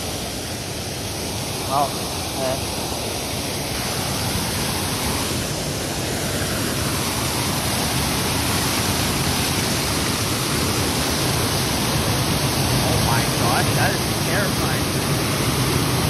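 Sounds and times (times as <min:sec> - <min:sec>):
water gushing from burst pipe: 0:06.9 - 0:16.0.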